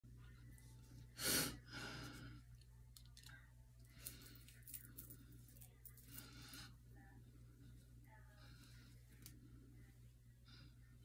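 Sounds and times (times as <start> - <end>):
low steady hum: 0.0 - 11.0
soft breath: 3.8 - 11.0.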